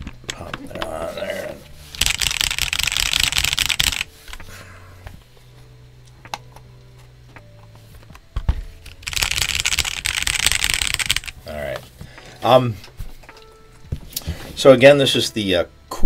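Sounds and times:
fast typing on mechanical keyboard: 0:01.9 - 0:04.1, 0:09.0 - 0:11.4.

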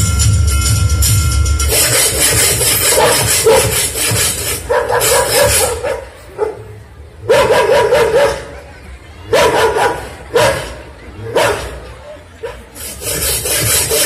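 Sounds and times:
dog barking and yelping over loudspeakers: 0:02.7 - 0:12.8.

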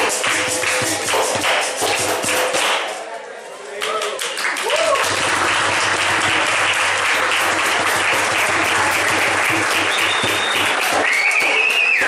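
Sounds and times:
crowd applauding: 0:03.8 - 0:12.0.

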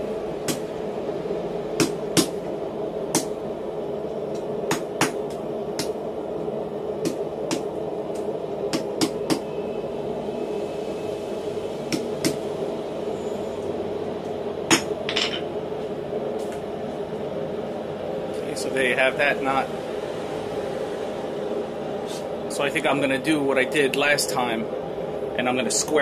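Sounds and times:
steady hum: 0:00.0 - 0:26.0
hammer striking metal on anvil: 0:14.7 - 0:15.5.

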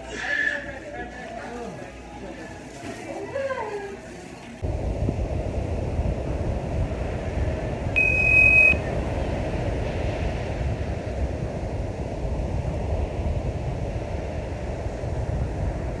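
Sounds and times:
wind buffeting microphone: 0:04.6 - 0:16.0.

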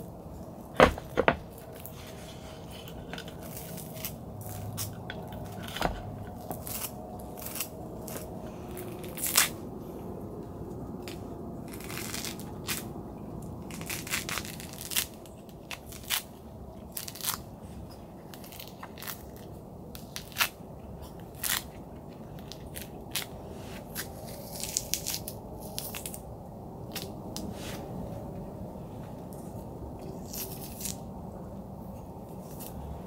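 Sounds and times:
orange peel tearing: 0:01.4 - 0:09.8, 0:11.0 - 0:26.2, 0:26.9 - 0:27.5, 0:30.0 - 0:31.1.

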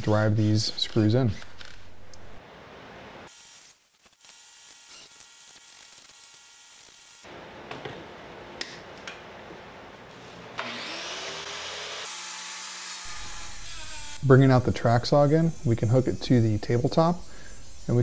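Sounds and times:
cordless drill into wood: 0:13.0 - 0:14.2.

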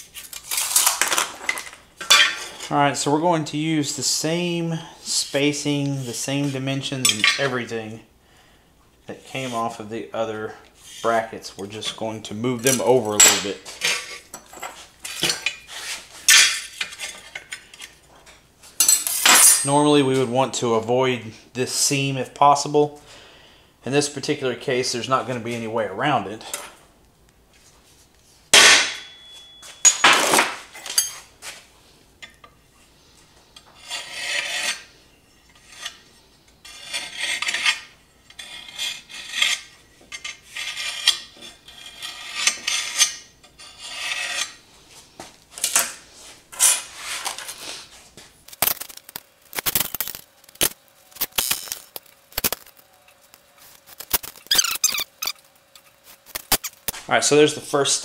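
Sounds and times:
scriber scratching steel: 0:33.5 - 0:44.6, 0:48.5 - 0:57.0.

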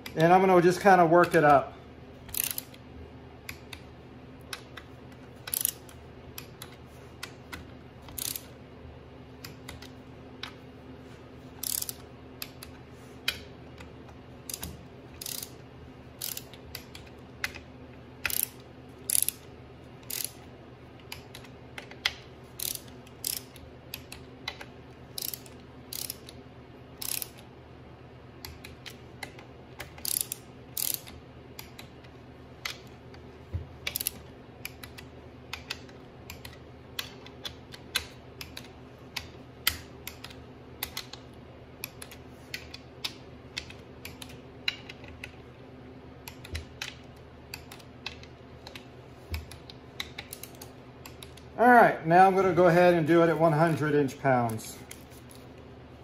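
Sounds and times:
torque wrench clicking: 0:02.3 - 0:02.8, 0:05.4 - 0:06.7, 0:08.1 - 0:08.5, 0:11.6 - 0:12.7, 0:14.5 - 0:15.6, 0:16.2 - 0:17.6, 0:18.2 - 0:20.4, 0:21.1 - 0:26.4, 0:27.0 - 0:27.4, 0:29.9 - 0:31.9, 0:33.8 - 0:37.2.

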